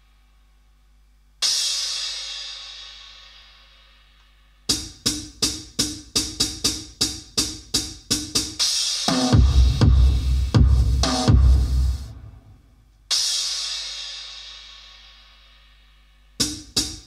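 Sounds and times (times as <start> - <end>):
drum machine cymbal hit: 1.4 - 17.0
drum machine percussive hits: 4.7 - 15.1, 16.4 - 17.0.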